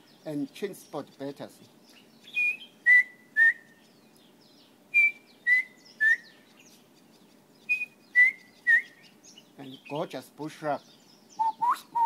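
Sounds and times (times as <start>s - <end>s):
man whistling bird call: 2.3s - 3.7s, 4.9s - 6.4s, 7.7s - 9.0s, 11.4s - 12.0s.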